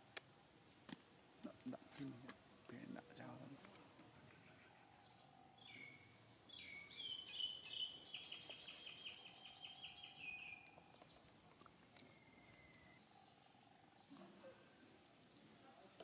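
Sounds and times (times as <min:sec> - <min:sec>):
animal chirping and trilling: 0:05.0 - 0:14.2
thin whistle: 0:12.0 - 0:13.0.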